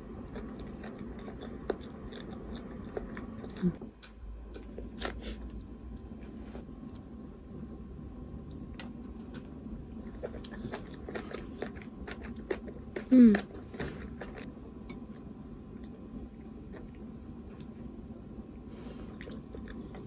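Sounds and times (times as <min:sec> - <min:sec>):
faint low hum: 0:00.0 - 0:20.0
person chewing: 0:00.1 - 0:05.7, 0:08.5 - 0:17.8, 0:18.9 - 0:20.0.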